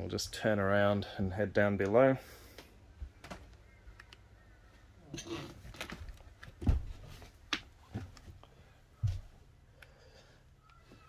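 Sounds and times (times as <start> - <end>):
footsteps on wooden steps: 5.7 - 8.4, 9.0 - 9.4.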